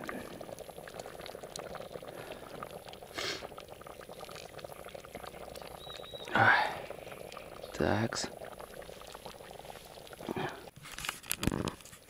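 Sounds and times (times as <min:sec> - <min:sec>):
thick soup bubbling: 0:00.0 - 0:12.0.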